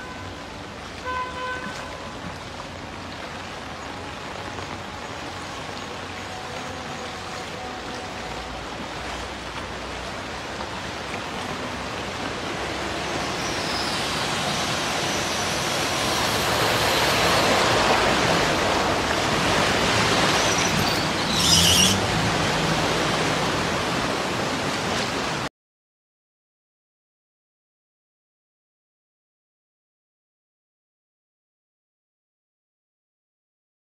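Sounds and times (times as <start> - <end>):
car splashing through water: 0.0 - 25.5
heavy rain: 0.0 - 25.5.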